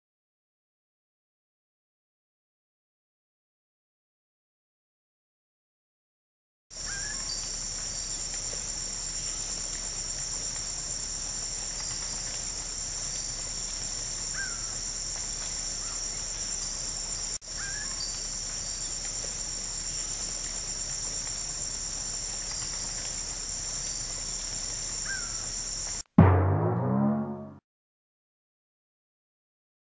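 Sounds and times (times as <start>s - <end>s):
insects trilling: 6.8s - 26.0s.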